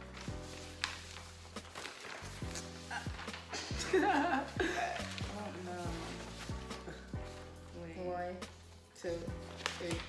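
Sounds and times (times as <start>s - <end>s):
background music beat: 0.0s - 10.0s.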